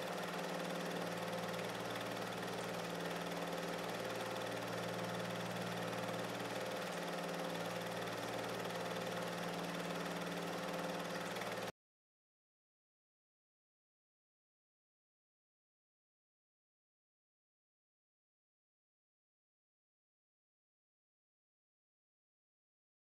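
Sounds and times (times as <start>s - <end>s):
steady machine hum: 0.0s - 11.7s.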